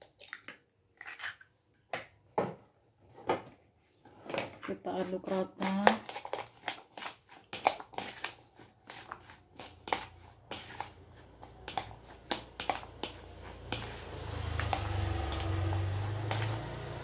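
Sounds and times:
hand mixing wet food in bowl: 4.7 - 17.0.

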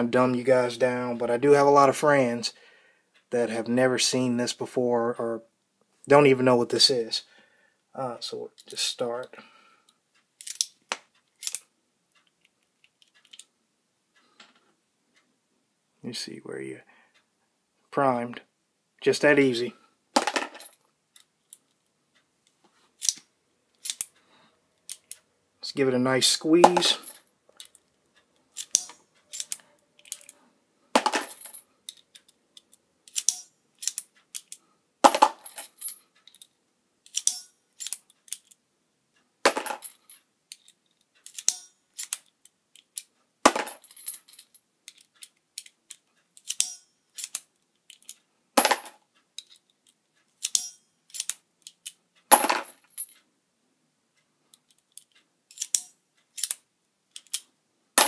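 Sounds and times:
small metallic clicks and clinks: 10.2 - 13.5, 23.0 - 24.2, 24.8 - 25.3, 26.7 - 30.4, 31.0 - 38.6, 39.6 - 53.3, 54.5 - 57.5.

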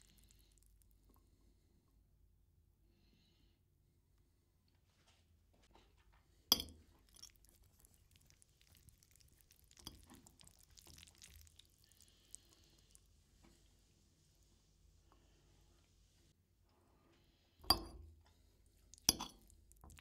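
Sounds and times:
tableware clinking: 17.7 - 18.0, 19.1 - 19.4.

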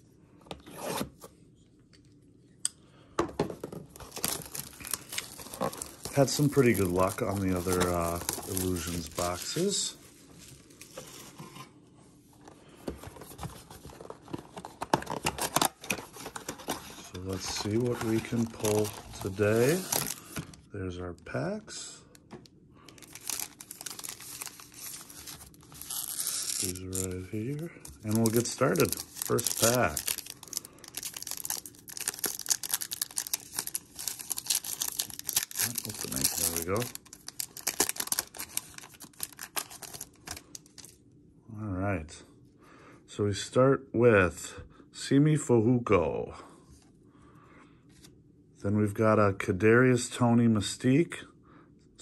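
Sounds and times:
foil wrapper crinkling and tearing: 3.9 - 10.9, 14.0 - 20.6, 22.9 - 41.0.

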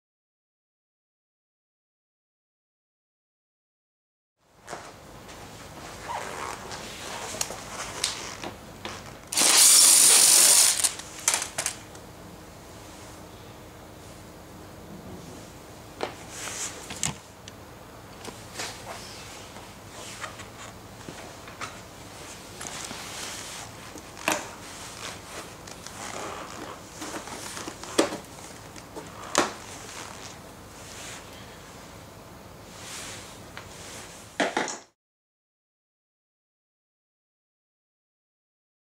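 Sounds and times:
cordless driver running: 9.3 - 11.8
soft handling noise: 18.2 - 32.0.

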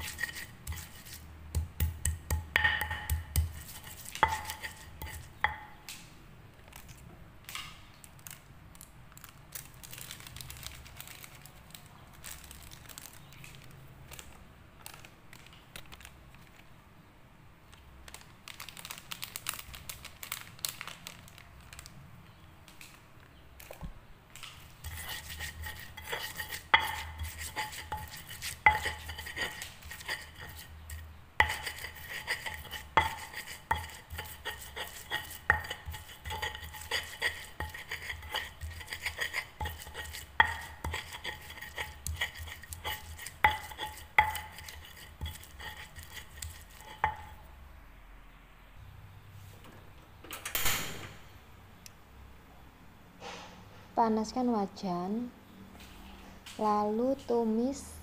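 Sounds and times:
stone pestle grinding paste: 0.0 - 5.6, 24.8 - 47.4.

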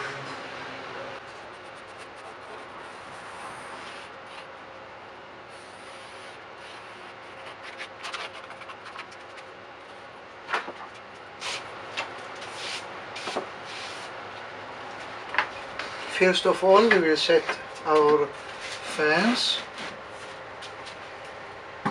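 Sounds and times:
pencil scratching: 1.4 - 4.5, 5.6 - 9.4.

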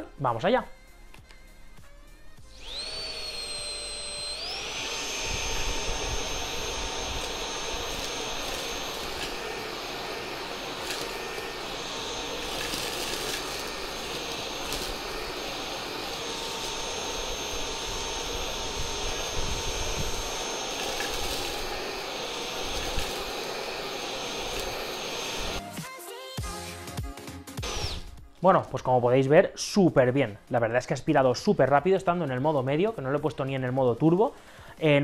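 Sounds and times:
vacuum cleaner running: 2.3 - 25.7, 27.6 - 28.1
debris clicking in vacuum: 7.2 - 16.7.

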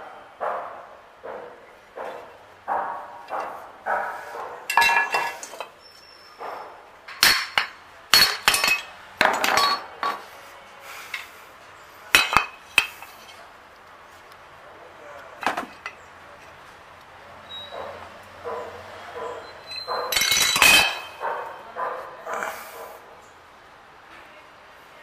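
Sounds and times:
metal engine parts clinking: 4.6 - 6.0, 7.1 - 10.3, 12.1 - 13.4, 15.4 - 16.1, 19.7 - 21.3.

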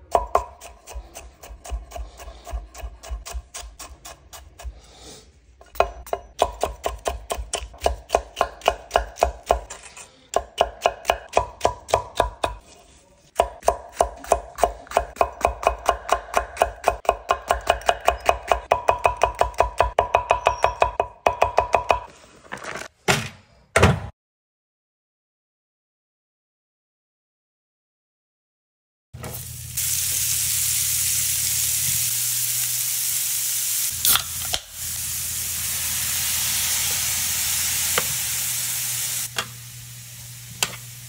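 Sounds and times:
knife chopping on wooden board: 5.8 - 9.8.

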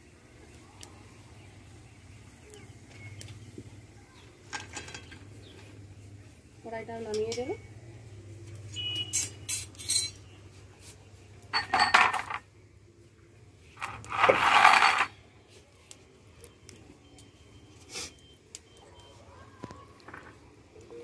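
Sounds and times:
metal utensils clinking: 4.5 - 5.3, 8.8 - 10.2, 11.5 - 12.4, 13.8 - 15.2
metal pot clanking on concrete: 8.8 - 10.2, 11.5 - 12.4
metal pot scraping clatter: 8.8 - 10.2, 13.8 - 15.2.

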